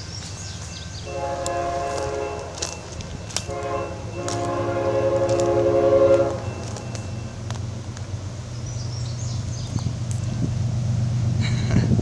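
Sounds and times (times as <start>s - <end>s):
train air horn blasts: 1.0s - 6.8s.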